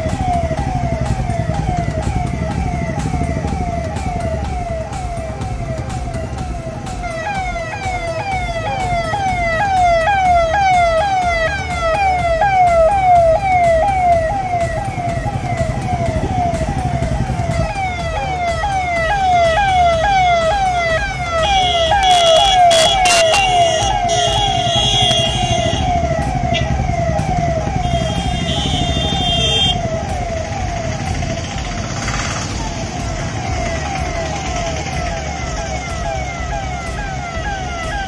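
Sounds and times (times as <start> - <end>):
electronic siren wailing: 0.0 - 38.0
steady siren tones: 0.0 - 38.0
vehicle engines rumbling: 0.0 - 38.0.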